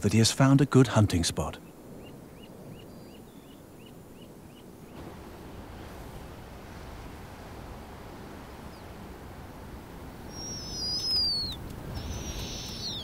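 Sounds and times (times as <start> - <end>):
owl screeching: 10.3 - 13.0.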